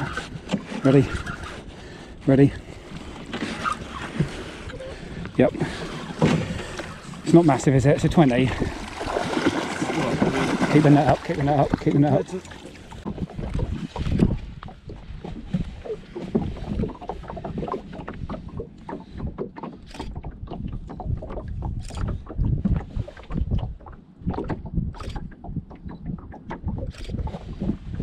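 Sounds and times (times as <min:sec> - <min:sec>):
knocks and clicks in boat: 0:00.0 - 0:28.0
water lapping against boat hull: 0:00.0 - 0:28.0
wind buffeting microphone: 0:00.0 - 0:28.0.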